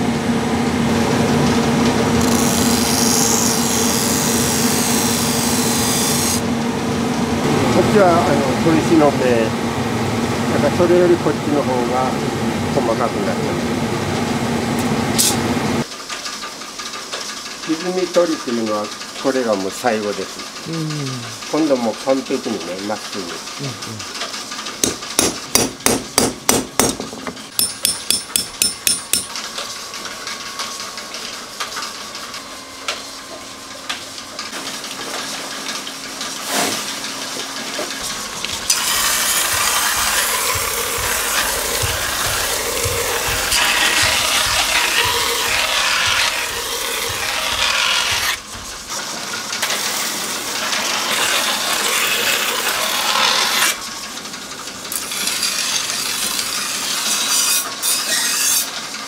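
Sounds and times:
blade on grinding wheel: 0:01.6 - 0:06.5, 0:38.0 - 0:53.9, 0:54.9 - 0:58.7
hammer tapping steel knife blade: 0:27.6 - 0:29.3, 0:38.7 - 0:48.4.

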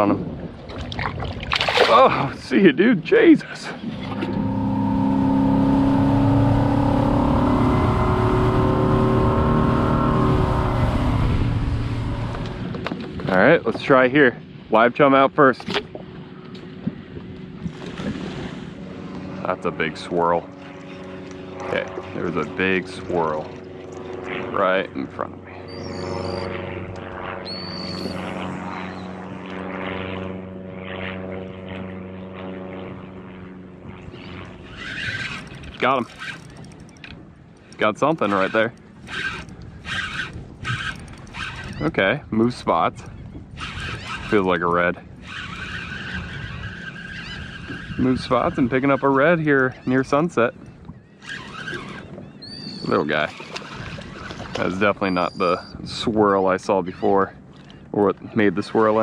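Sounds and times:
outboard engine running: 0:00.0 - 0:59.0
wind: 0:00.0 - 0:59.0
water rushing: 0:00.7 - 0:12.7
electric motor humming: 0:03.6 - 0:13.0, 0:25.4 - 0:42.0, 0:43.5 - 0:49.4.

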